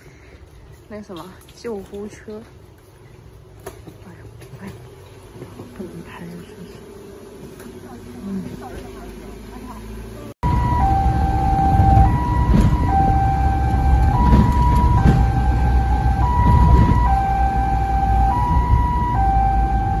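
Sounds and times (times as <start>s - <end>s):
engine and road rumble: 0.0s - 20.0s
two-tone ambulance siren: 10.4s - 20.0s.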